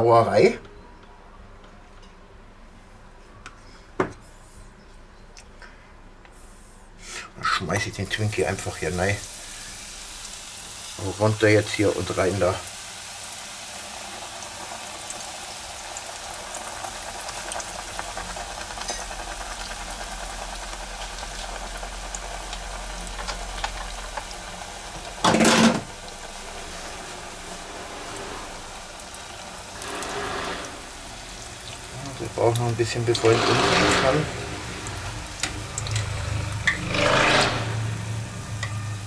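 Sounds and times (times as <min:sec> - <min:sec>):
food deep-frying in oil: 0:07.8 - 0:39.0.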